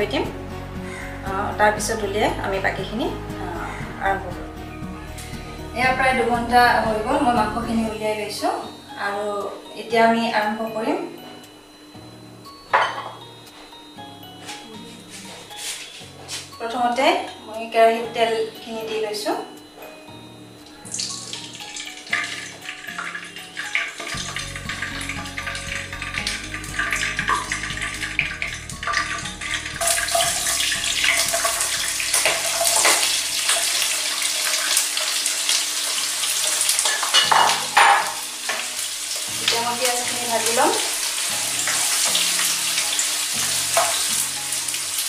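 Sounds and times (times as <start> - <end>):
soft background music: 0.0 - 45.0
onions sizzling in hot oil: 20.0 - 45.0.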